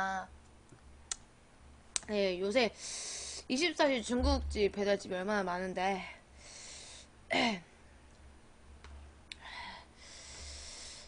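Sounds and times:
woman breathing: 2.8s - 3.5s, 6.2s - 7.1s, 9.4s - 11.0s.

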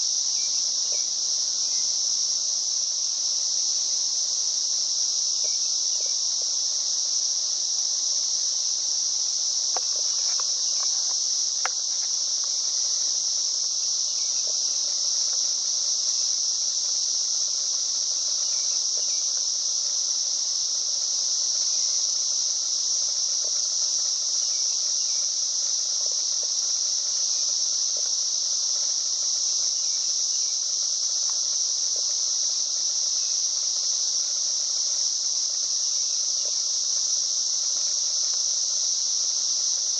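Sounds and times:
insect chorus buzzing: 0.0s - 39.9s
faint ticks: 5.4s - 6.6s, 9.6s - 13.1s, 14.2s - 15.6s, 26.0s - 29.0s, 31.1s - 32.8s, 36.3s - 38.8s.

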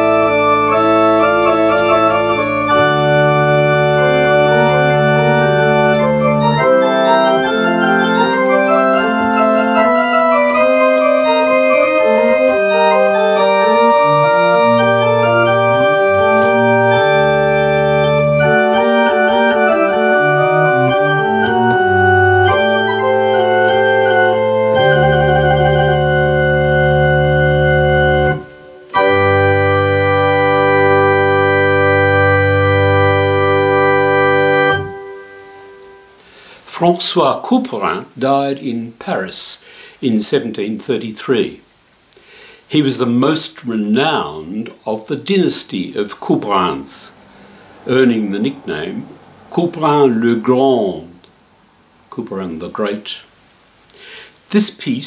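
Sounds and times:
electronic organ playing chords: 0.0s - 36.5s, 46.5s - 51.0s.

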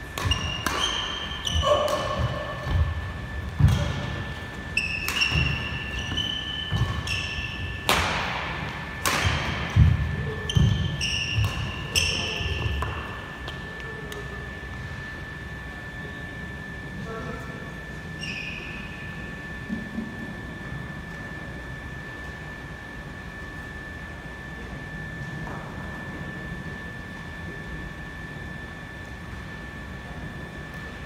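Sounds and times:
racket hitting shuttlecock: 0.1s - 2.9s, 4.9s - 5.9s, 6.6s - 13.6s
shoes squeaking on court: 0.2s - 7.9s, 10.2s - 13.3s, 18.2s - 18.8s.

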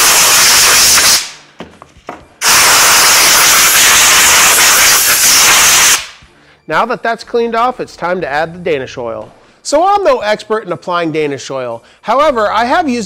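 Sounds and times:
compressed air blow gun hissing: 0.0s - 1.4s, 2.4s - 6.2s.

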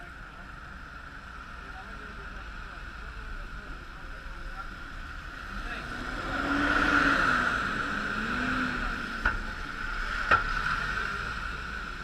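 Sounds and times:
tyres hissing on wet road: 0.6s - 12.0s
bus engine passing: 3.6s - 12.0s.

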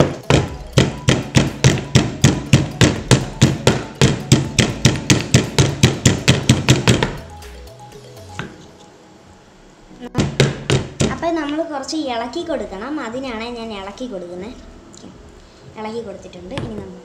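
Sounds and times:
stone pestle pounding in mortar: 0.0s - 7.2s, 10.2s - 11.2s.

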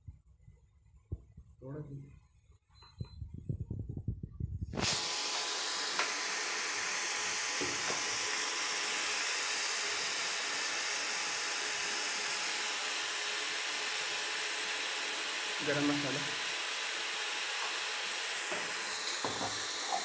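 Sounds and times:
masala sizzling in oil: 16.4s - 20.0s.

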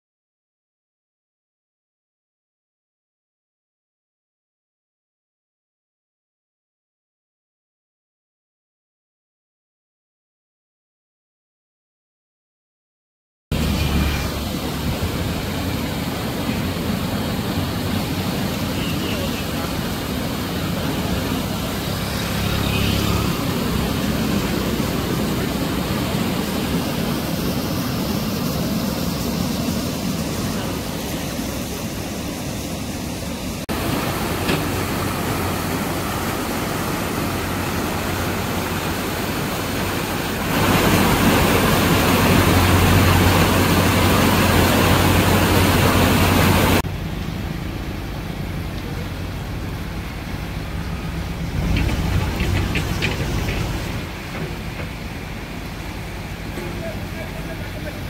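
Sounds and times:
floodwater rushing over weir: 13.5s - 58.0s.

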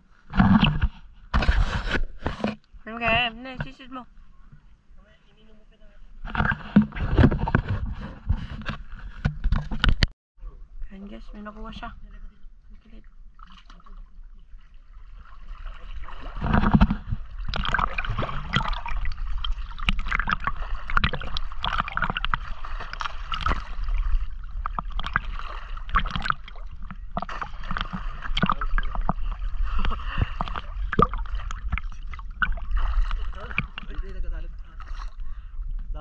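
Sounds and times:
water sloshing and gurgling: 0.0s - 10.2s, 10.8s - 36.0s
swimmer splashing: 13.5s - 35.2s.

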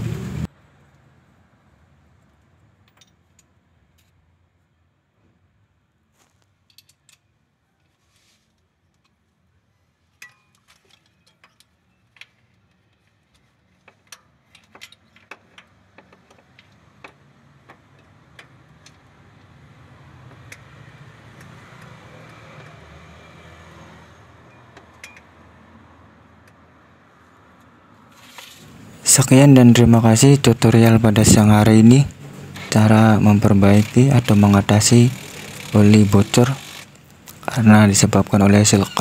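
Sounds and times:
metallic clicks of hand tools: 6.7s - 7.3s.

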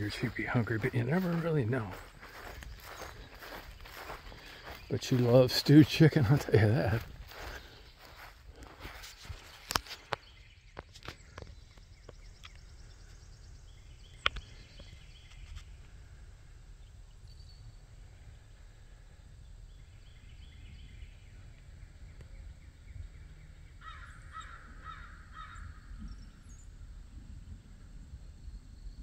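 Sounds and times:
harsh bird calls: 0.0s - 15.8s.

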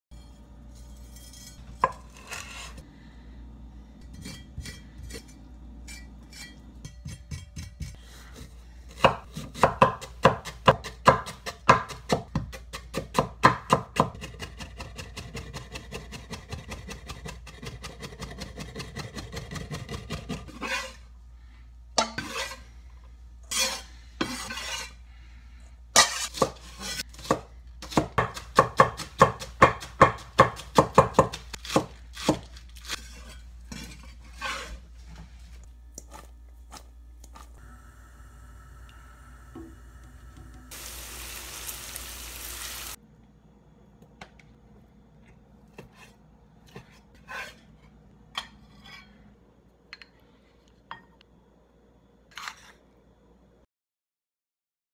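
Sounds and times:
cleaver chopping on wooden board: 27.2s - 32.4s.

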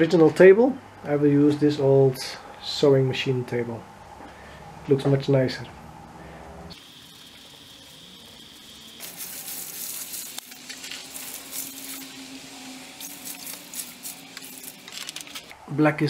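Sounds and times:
water splashing on metal and gravel: 8.7s - 15.1s.

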